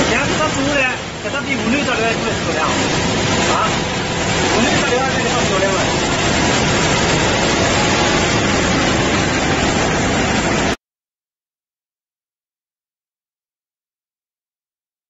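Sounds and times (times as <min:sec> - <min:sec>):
loud steady machine noise: 0:00.0 - 0:10.8.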